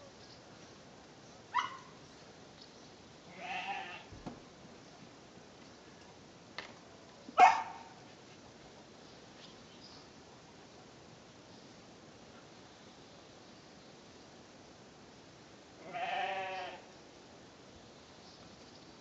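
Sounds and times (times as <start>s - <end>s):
dog yelp: 1.5s - 1.9s, 7.4s - 7.9s
dog barking: 1.5s - 2.0s, 7.4s - 8.0s.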